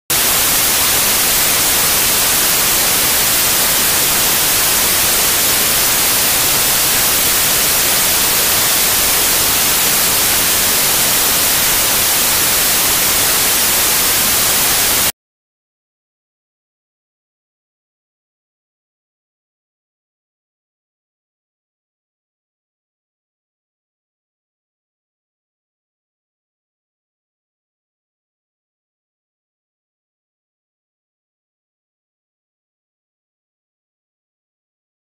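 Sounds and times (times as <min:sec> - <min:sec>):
loud static hiss: 0:00.1 - 0:15.1.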